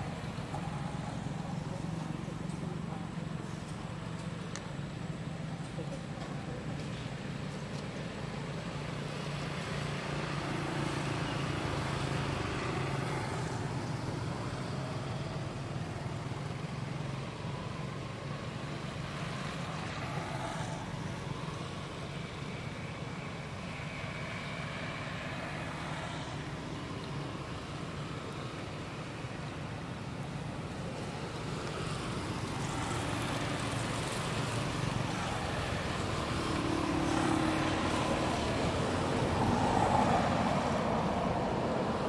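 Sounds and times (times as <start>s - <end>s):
low engine-like hum: 0.0s - 42.0s
outdoor background noise: 0.0s - 42.0s.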